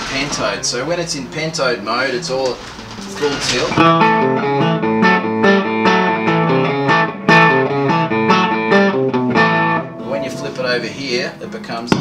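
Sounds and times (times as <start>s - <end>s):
electric guitar riff: 2.9s - 11.6s.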